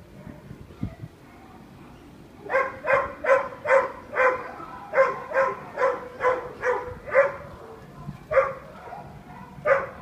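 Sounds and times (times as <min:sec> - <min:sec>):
dog barking: 0:02.5 - 0:07.5, 0:08.3 - 0:10.0.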